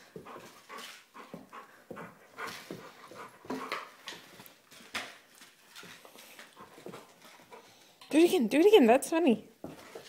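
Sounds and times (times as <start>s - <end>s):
dog panting: 0.0s - 4.6s, 5.8s - 8.0s.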